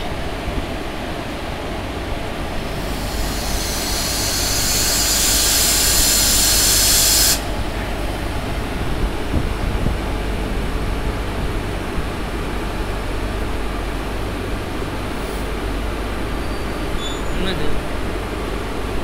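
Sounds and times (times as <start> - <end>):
locomotive low rumble: 0.0 - 19.0
compressed air hissing: 2.5 - 7.7.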